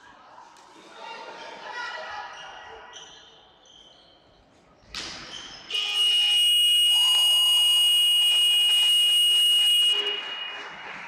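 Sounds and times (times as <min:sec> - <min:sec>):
scoreboard buzzer long tone: 0:05.8 - 0:10.2.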